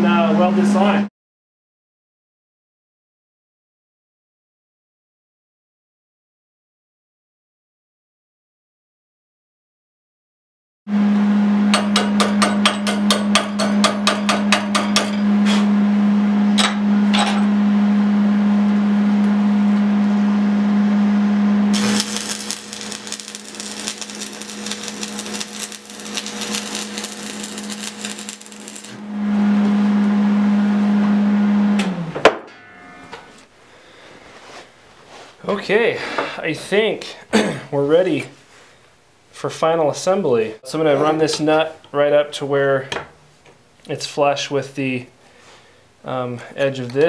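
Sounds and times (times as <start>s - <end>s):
welding arc crackling and hissing: 21.7s - 29.0s
arc welder humming: 21.7s - 30.6s.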